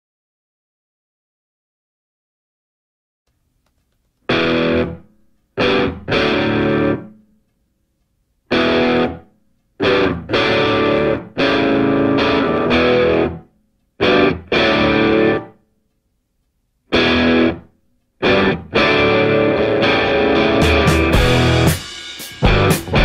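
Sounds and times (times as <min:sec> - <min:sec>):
distorted electric guitar chords: 0:04.3 - 0:07.2, 0:08.5 - 0:15.6, 0:16.9 - 0:23.0.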